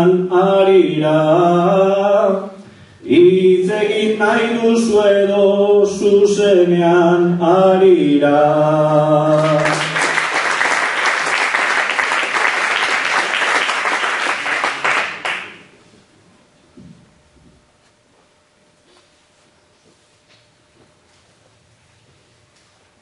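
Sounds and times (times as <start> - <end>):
man singing unaccompanied: 0.0 - 10.0
audience applause: 9.3 - 15.7.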